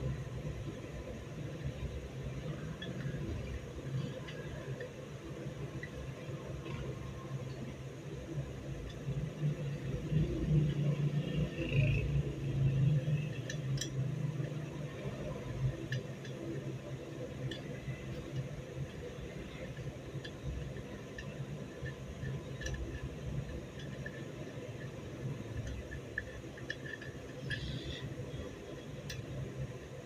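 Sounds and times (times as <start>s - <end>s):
steady low hum: 0.0s - 30.0s
light metal clicks and taps: 13.3s - 29.8s.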